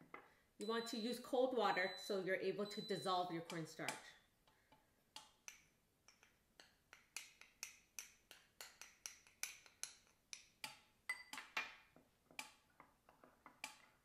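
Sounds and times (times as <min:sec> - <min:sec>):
spoon clinking against glass bowl: 0:11.1 - 0:11.4.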